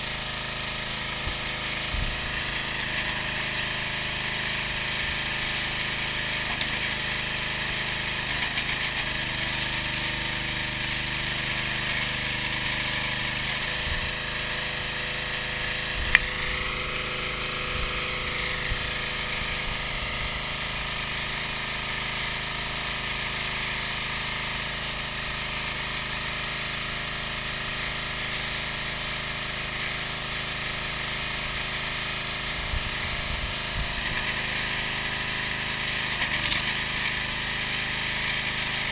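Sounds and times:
small petrol engine running: 0.0 - 38.9
log splitting crack: 6.4 - 7.0, 11.9 - 13.8, 16.0 - 16.7, 36.2 - 37.2.

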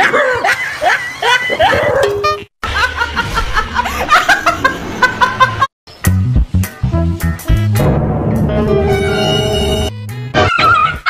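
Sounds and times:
background music with held notes: 6.0 - 11.0.

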